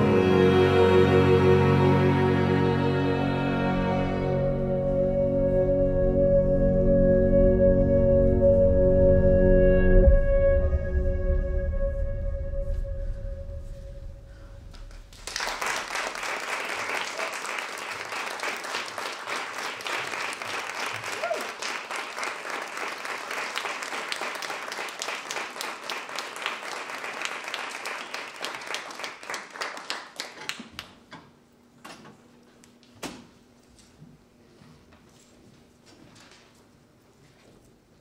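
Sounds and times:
audience applauding: 14.7 - 31.0.

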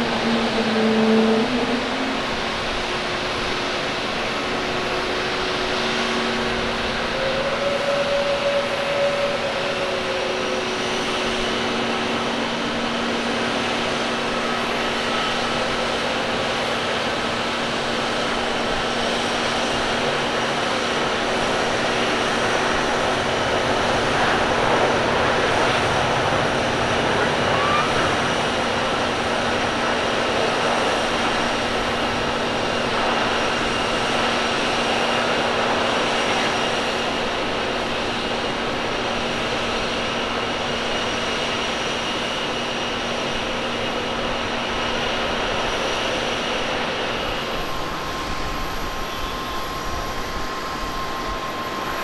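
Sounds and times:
faint humming tones: 0.0 - 18.0
airliner jet rush: 0.0 - 52.0.

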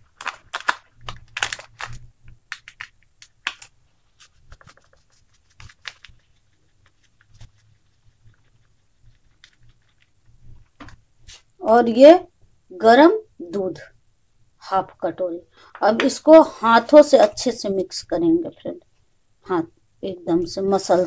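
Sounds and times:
plastic packet crinkling: 0.0 - 7.6.

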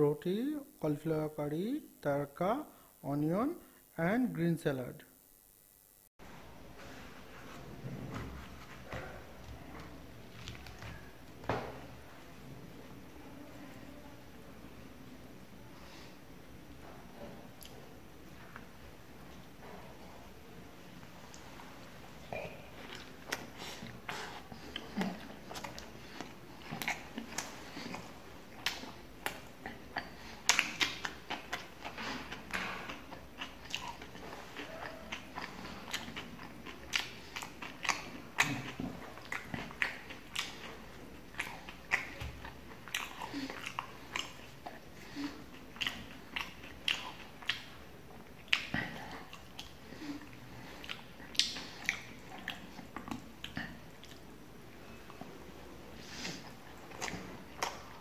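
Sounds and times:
person chewing: 9.8 - 11.4, 22.2 - 55.3, 56.0 - 58.0.

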